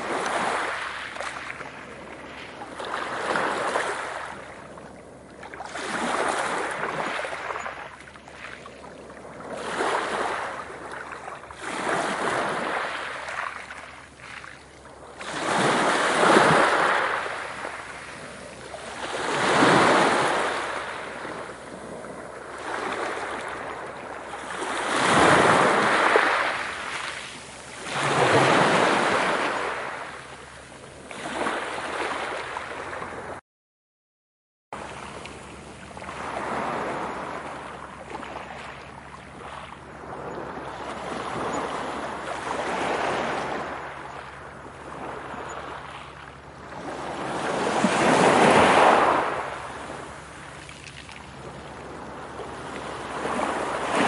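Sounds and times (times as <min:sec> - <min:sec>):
sea waves breaking: 0:00.0 - 0:33.4, 0:34.8 - 0:54.0.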